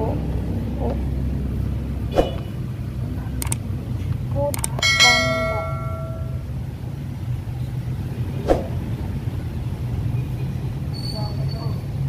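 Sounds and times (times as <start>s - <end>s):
click and bell ding: 4.7s - 6.4s.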